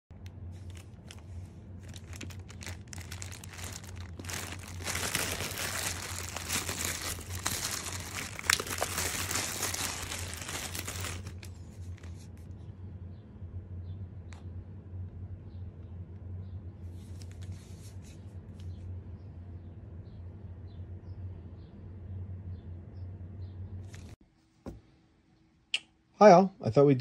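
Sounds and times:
steady low hum: 0:00.1 - 0:24.2
plastic wrapping crinkling and tearing: 0:00.5 - 0:12.3.

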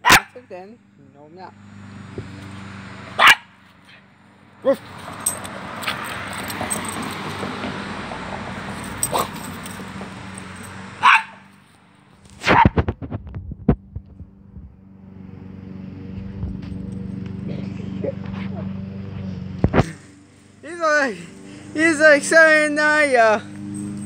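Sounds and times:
small dog barking: 0:00.0 - 0:00.4, 0:03.2 - 0:04.0, 0:09.1 - 0:09.4, 0:11.0 - 0:11.5.

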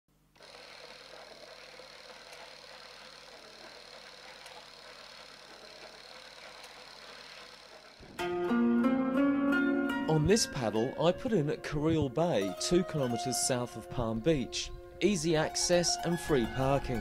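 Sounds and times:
film projector whirring: 0:00.3 - 0:08.2
projector clicking: 0:02.3 - 0:06.9.

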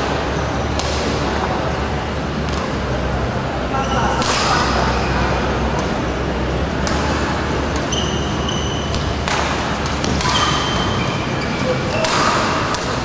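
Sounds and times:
hall noise: 0:00.0 - 0:13.0
racket hitting shuttlecock: 0:00.8 - 0:01.3, 0:04.2 - 0:04.8, 0:06.8 - 0:11.0, 0:11.9 - 0:13.0
shoe squeak on court: 0:07.8 - 0:12.2.

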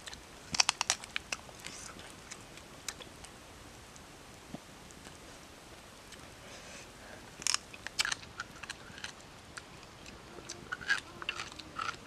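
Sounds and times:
man chewing crunchy food: 0:00.0 - 0:03.4, 0:07.4 - 0:12.0.

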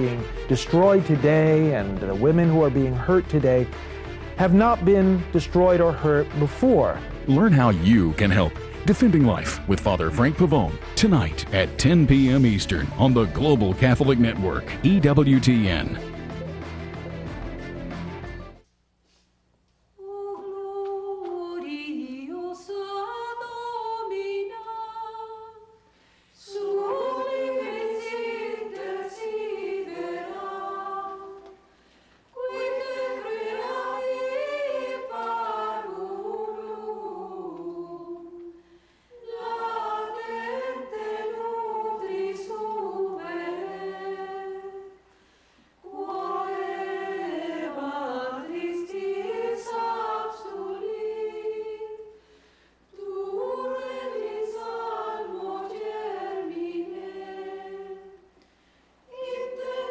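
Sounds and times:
choir singing a hymn unaccompanied: 0:20.0 - 0:25.8, 0:26.4 - 0:31.7, 0:32.3 - 0:45.1, 0:45.8 - 0:52.2, 0:52.9 - 0:58.3, 0:59.1 - 0:59.9.

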